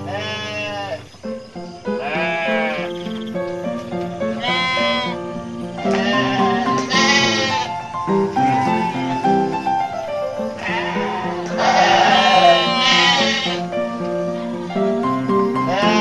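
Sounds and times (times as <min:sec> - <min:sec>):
sheep bleating: 0:00.0 - 0:01.0, 0:02.0 - 0:03.0, 0:04.3 - 0:05.2, 0:05.8 - 0:07.8, 0:10.6 - 0:13.7, 0:15.6 - 0:16.0
background music held notes: 0:00.0 - 0:16.0.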